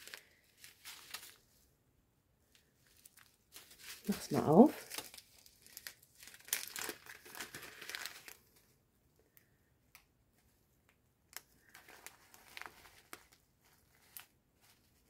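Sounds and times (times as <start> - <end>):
plastic bag crinkling: 0.0 - 1.5, 2.5 - 8.6, 11.3 - 15.0.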